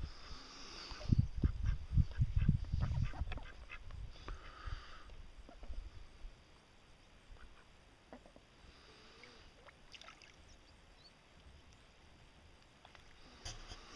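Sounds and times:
faint water movement: 8.1s - 11.9s.

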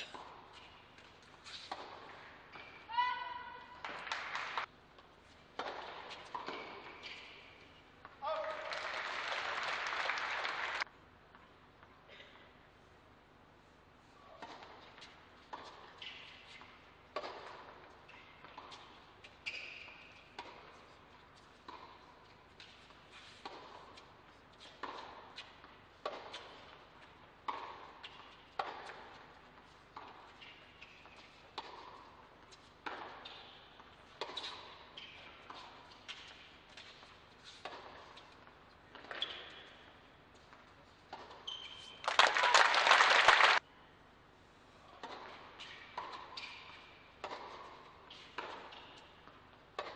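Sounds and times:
shoes squeaking on court: 0.0s - 3.4s, 5.3s - 8.1s, 14.2s - 42.2s, 44.9s - 49.9s
racket striking tennis ball: 0.0s - 4.2s, 5.5s - 7.4s, 14.4s - 20.8s, 21.6s - 22.0s, 22.6s - 23.9s, 24.6s - 26.6s, 27.4s - 29.2s, 29.9s - 32.2s, 32.8s - 33.6s, 34.2s - 38.2s, 45.0s - 49.9s
crowd applause: 8.7s - 10.8s, 42.1s - 43.6s.

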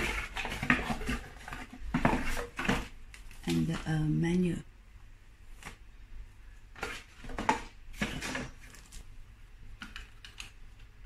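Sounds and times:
plastic rustling and clacking: 0.0s - 3.8s, 6.7s - 9.1s, 9.8s - 10.9s.

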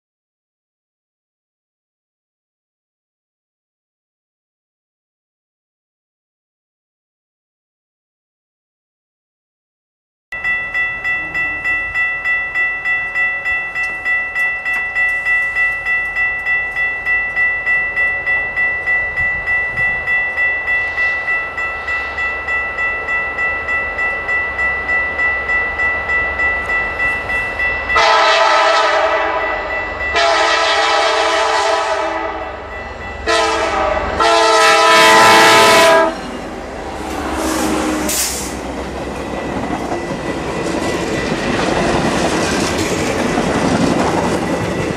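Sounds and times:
railroad crossing bell ringing: 10.3s - 44.9s
locomotive horn blowing: 28.0s - 32.6s, 33.2s - 36.4s
train wheels clicking over rail joints: 38.0s - 44.9s.

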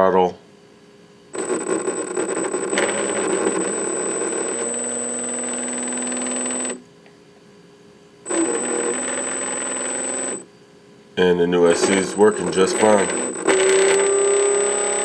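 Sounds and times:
electric motor whining: 1.4s - 6.8s, 8.3s - 10.4s, 11.7s - 15.0s.

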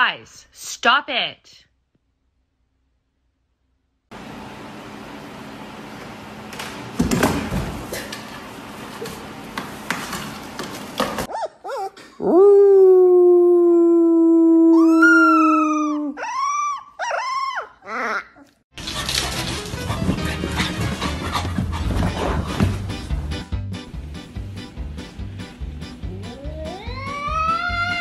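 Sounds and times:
puppy howling: 11.3s - 18.5s, 26.2s - 28.0s
man howling: 12.2s - 18.1s, 26.2s - 28.0s.

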